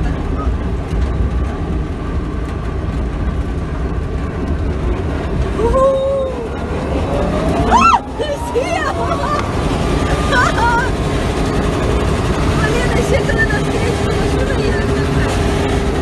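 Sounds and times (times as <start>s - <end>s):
road and tyre rumble: 0.0s - 16.0s
electric motor whine rising: 6.3s - 11.9s.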